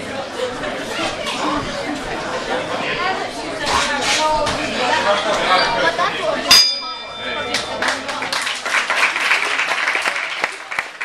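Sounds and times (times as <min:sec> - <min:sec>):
bell ringing: 0:05.5 - 0:08.1
spectators applauding: 0:07.5 - 0:11.0.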